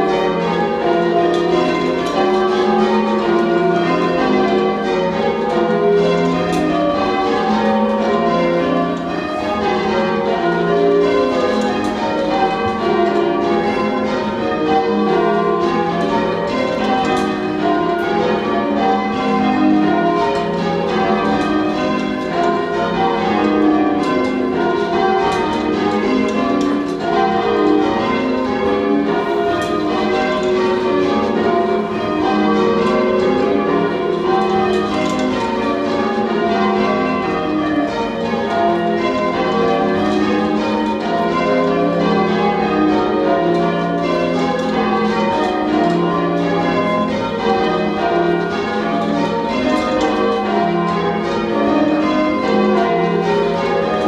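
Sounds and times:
church bells ringing: 0:00.0 - 0:54.0.

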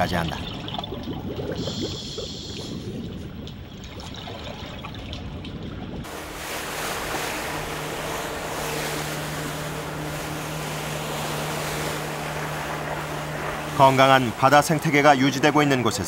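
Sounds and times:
low rumbling noise: 0:00.0 - 0:16.0
sea wind: 0:00.0 - 0:16.0
waves: 0:00.0 - 0:16.0
boat engine droning: 0:06.0 - 0:16.0.

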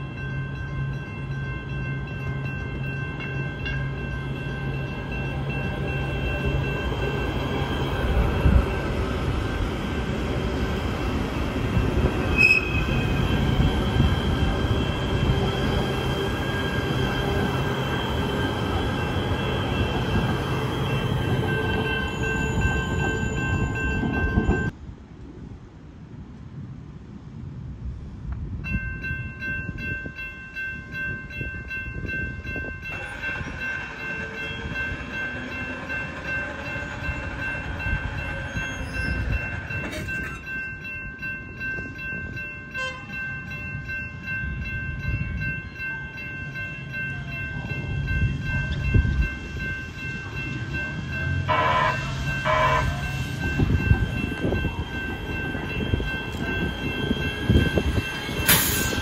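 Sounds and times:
crossing warning bells ringing: 0:00.0 - 0:24.8, 0:28.6 - 0:59.0
train rumble: 0:00.0 - 0:59.0
train horn blasts: 0:12.3 - 0:13.2, 0:42.7 - 0:43.2, 0:51.4 - 0:53.2.

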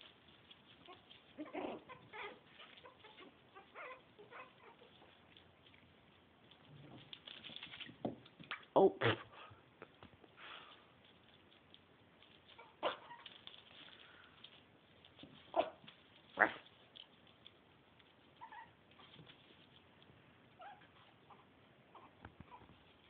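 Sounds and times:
puppies yipping: 0:00.0 - 0:05.3, 0:12.5 - 0:13.5, 0:15.5 - 0:16.6, 0:18.3 - 0:19.3, 0:20.6 - 0:23.0
puppies whimpering: 0:00.9 - 0:05.1.

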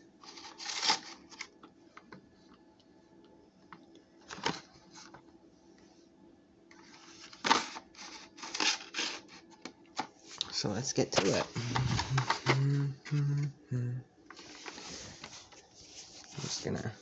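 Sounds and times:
plastic packaging crinkling: 0:00.2 - 0:01.6, 0:07.2 - 0:09.4.

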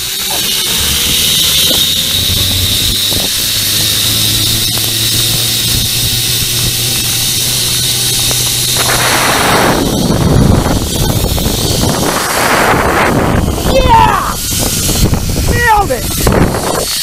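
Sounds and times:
rushing air: 0:00.0 - 0:17.0
zipline pulleys whining on cable: 0:00.0 - 0:17.0.

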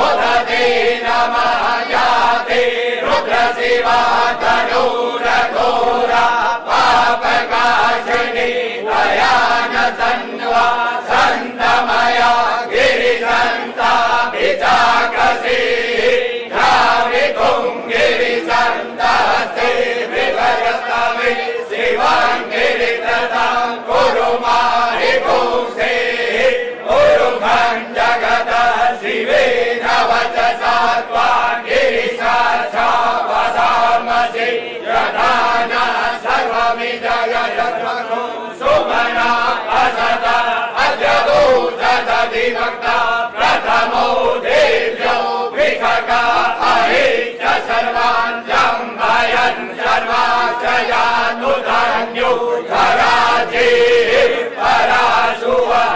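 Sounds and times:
men chanting together: 0:00.0 - 0:55.9.

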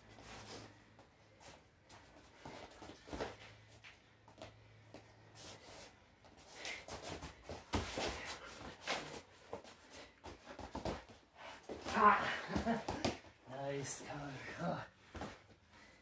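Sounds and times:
shoes scuffing on mat: 0:05.4 - 0:12.0
body slaps and thumps: 0:11.7 - 0:13.3.

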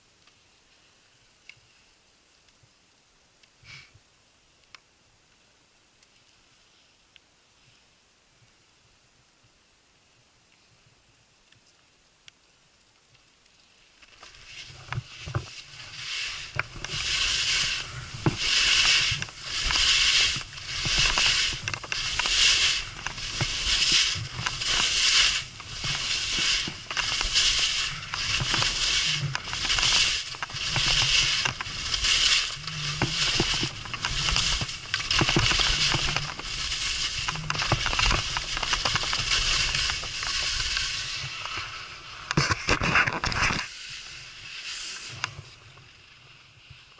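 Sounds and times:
skis scraping across snow: 0:13.7 - 0:46.9.

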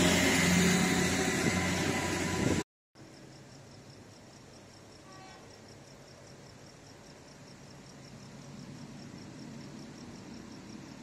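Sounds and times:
crickets chirping: 0:03.0 - 0:11.0.

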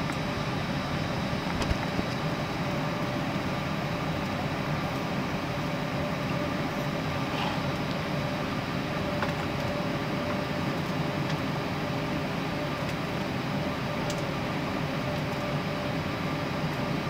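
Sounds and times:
airliner cabin air rush: 0:06.8 - 0:08.9.

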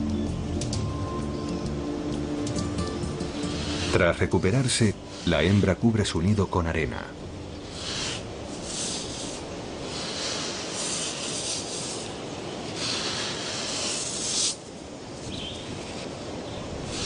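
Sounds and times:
sand scraping gritty hiss: 0:02.9 - 0:06.4, 0:07.5 - 0:17.0.

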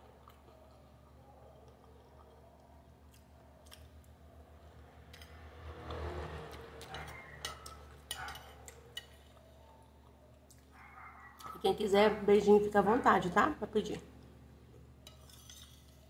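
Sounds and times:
chewing and mouth sounds: 0:00.0 - 0:05.2
metal spoon scraping ceramic plate: 0:15.0 - 0:16.0.

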